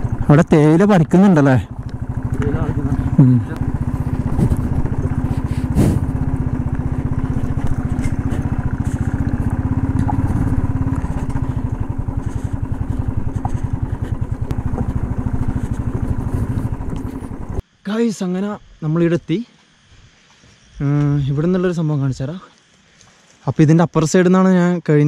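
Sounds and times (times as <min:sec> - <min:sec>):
light rattles: 0:00.0 - 0:17.6
small vehicle engine running: 0:00.0 - 0:17.6.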